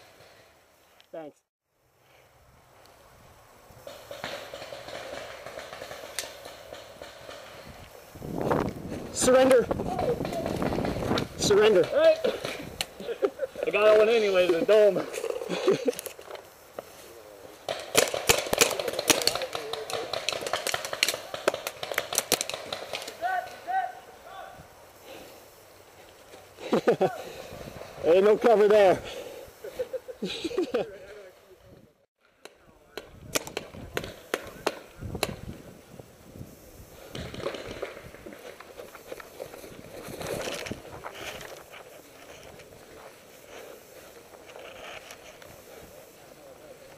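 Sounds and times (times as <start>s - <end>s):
paintball markers firing pops: 17.7s - 23.2s, 32.4s - 35.6s.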